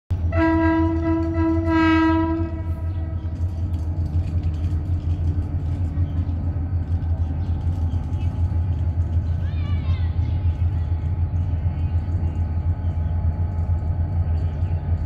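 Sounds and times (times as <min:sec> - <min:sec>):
train horn: 0:00.2 - 0:03.4.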